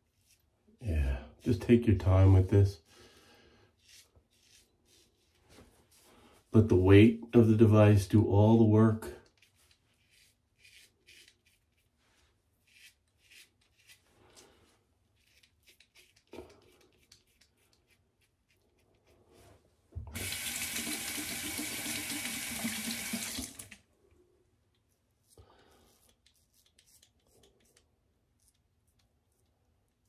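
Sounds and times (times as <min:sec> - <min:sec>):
razor scraping stubble: 0:03.8 - 0:05.5, 0:09.2 - 0:12.0, 0:12.6 - 0:14.4, 0:15.1 - 0:19.2, 0:25.2 - 0:29.5
sink tap running: 0:20.1 - 0:23.8.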